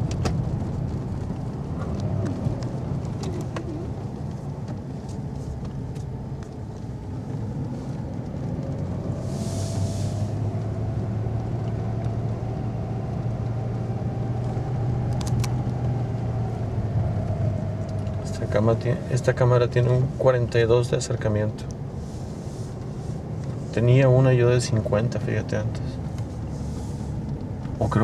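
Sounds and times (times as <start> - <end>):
truck engine and road hum: 0.0 - 28.0
brief hiss: 9.2 - 10.4.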